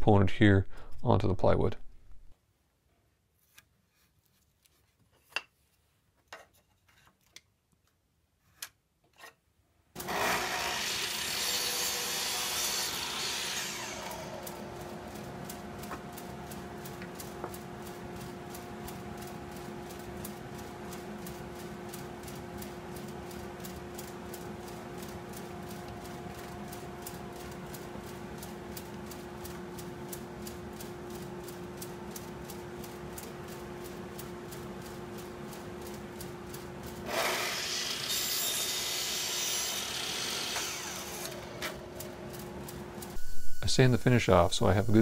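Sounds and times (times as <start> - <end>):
miter saw cutting wood: 10.0 - 15.3, 37.0 - 41.9
steady low hum: 13.6 - 37.1, 40.7 - 45.0.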